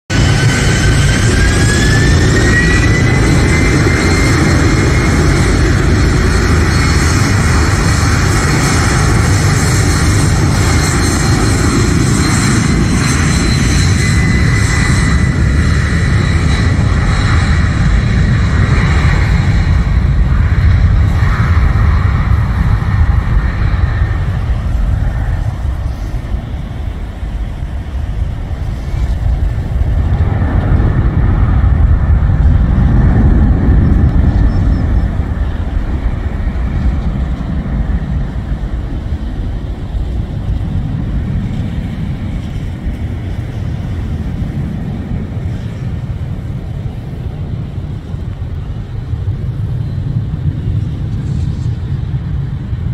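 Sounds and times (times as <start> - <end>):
jet engine rumble: 0.0 - 52.9
jet engine whine: 0.0 - 52.9.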